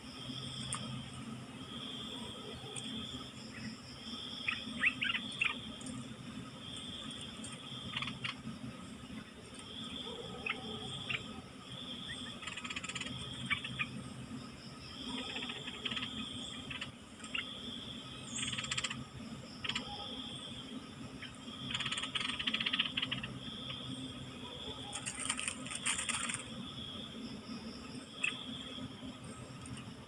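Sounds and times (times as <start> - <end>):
insects buzzing: 0.0 - 30.0
steady low hum: 0.0 - 30.0
sharp clicks: 24.9 - 26.5.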